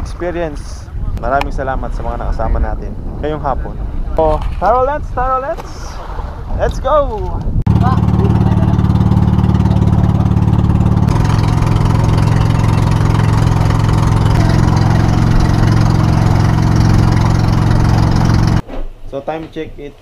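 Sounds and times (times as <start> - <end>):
boat engine running: 7.7 - 18.6
water rushing along hull: 7.7 - 18.6.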